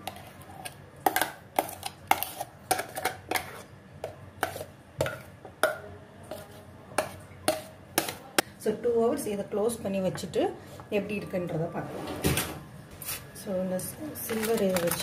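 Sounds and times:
utensil scraping ice cream: 1.6 - 3.7.

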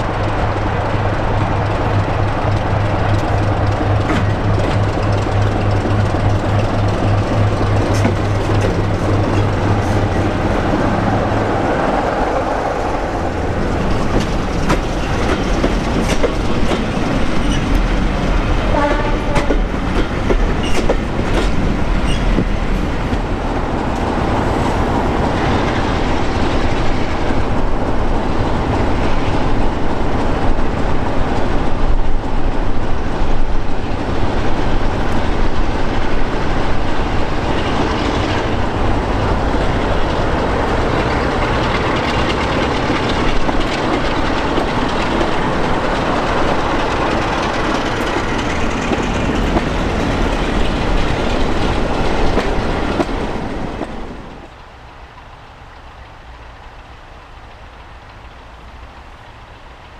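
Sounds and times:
idling locomotive engine: 0.0 - 23.5
train wheels clicking over rail joints: 0.0 - 24.7, 25.4 - 59.9
diesel locomotive engines running: 0.0 - 59.9.

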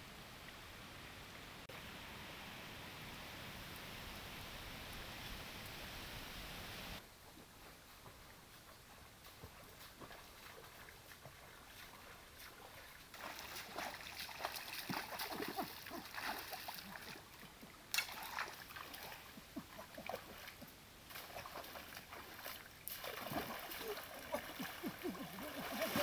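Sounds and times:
legs wading through shallow stream: 7.2 - 26.0
loud water splash: 22.9 - 26.0.

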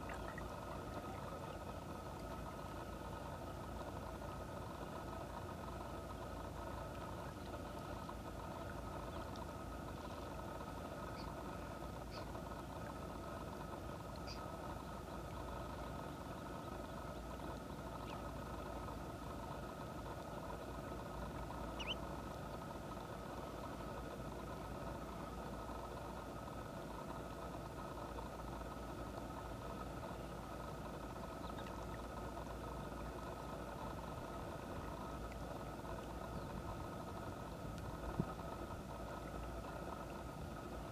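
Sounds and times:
steady mechanical hum: 0.0 - 40.9
faint high bird calls: 14.2 - 14.5, 21.7 - 22.0.

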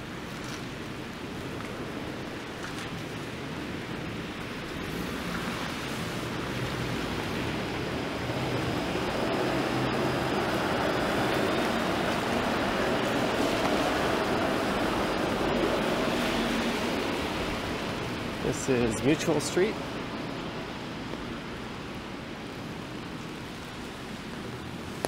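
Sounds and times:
tyres hissing on wet road: 0.0 - 25.0
large vehicle passing: 6.4 - 20.2.

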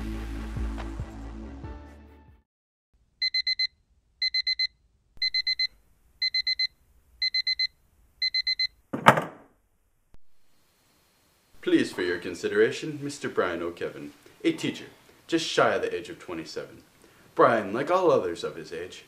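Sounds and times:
digital alarm clock beeping: 3.2 - 8.8
loud thump: 8.9 - 9.5.

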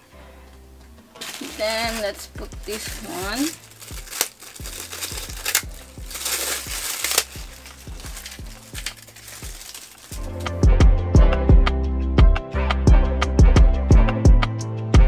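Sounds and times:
background music with a beat: 0.4 - 15.0
plastic packaging crinkling: 1.2 - 10.5.

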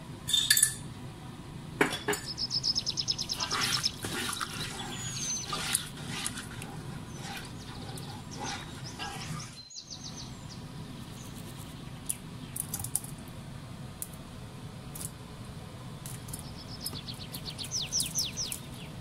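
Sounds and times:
birds chirping and trilling: 2.1 - 12.9, 16.0 - 19.0
spatula scraping a pot: 3.4 - 9.6.

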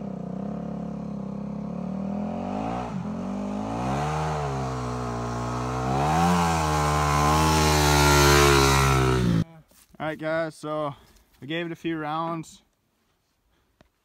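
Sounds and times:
dirt bike engine under load: 3.8 - 9.4.

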